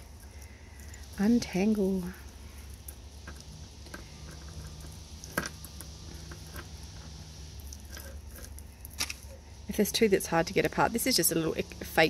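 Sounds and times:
necklace chains clinking: 0:00.0 - 0:09.4
low steady hum: 0:00.0 - 0:12.0.

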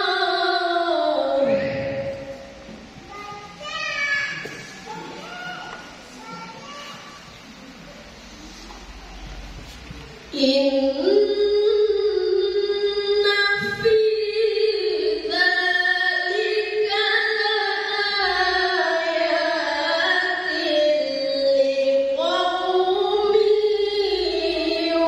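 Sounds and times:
woman reciting melodically: 0:00.0 - 0:02.7, 0:10.2 - 0:25.0.

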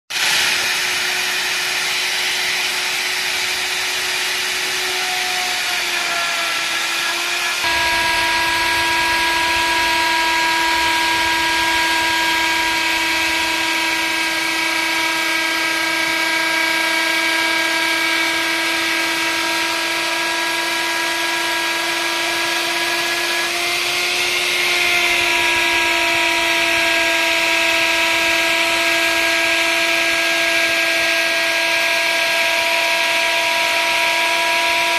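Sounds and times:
electric router whining: 0:00.1 - 0:34.9.

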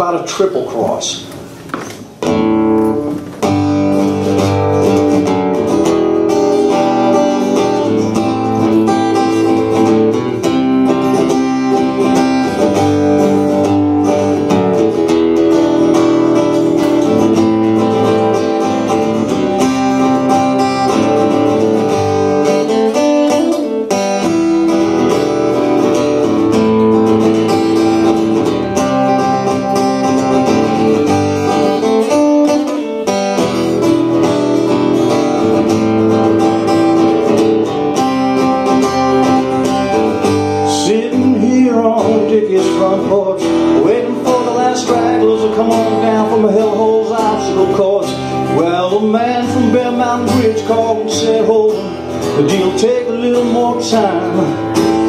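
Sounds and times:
acoustic guitar chords: 0:00.0 - 0:55.0.

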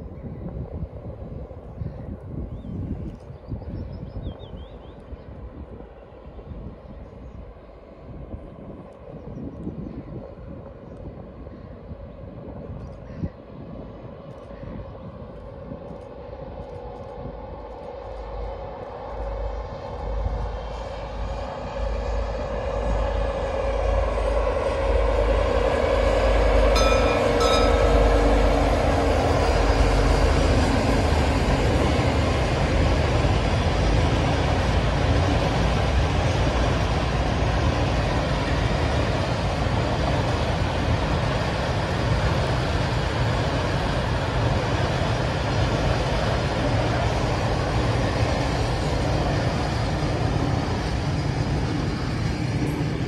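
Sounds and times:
diesel locomotive engines droning: 0:00.0 - 0:53.0
freight wagons rumbling on track: 0:19.3 - 0:53.0
brief high horn tones: 0:26.8 - 0:28.8.

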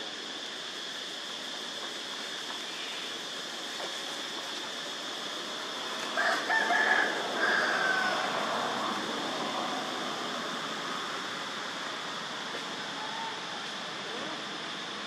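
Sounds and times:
steady high hiss: 0:00.0 - 0:15.0
rooster crowing: 0:06.2 - 0:08.9.

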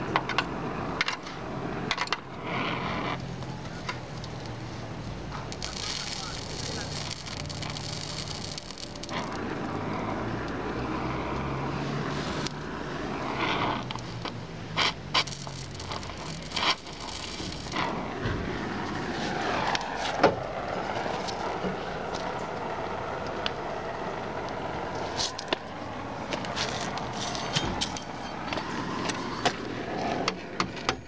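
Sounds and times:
low engine-like hum: 0:00.0 - 0:31.0
welding torch flame hissing: 0:00.5 - 0:30.1
sharp pops: 0:05.3 - 0:09.8.

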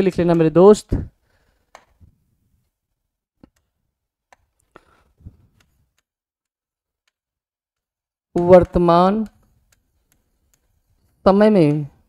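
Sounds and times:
pen tapping on touchscreen: 0:01.7 - 0:02.0, 0:04.3 - 0:06.1, 0:07.0 - 0:11.2.

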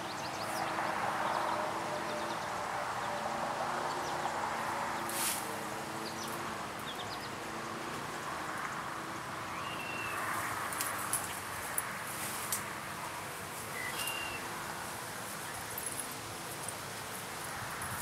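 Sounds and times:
bird chirp: 0:09.5 - 0:10.2, 0:13.8 - 0:14.5.

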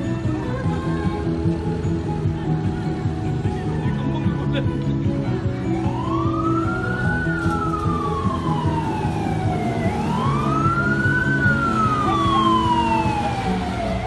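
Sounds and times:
police siren wailing: 0:05.7 - 0:14.0.

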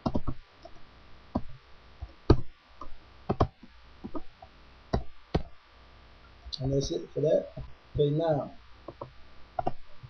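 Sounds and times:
keyboard keystroke clicks: 0:08.9 - 0:09.8.

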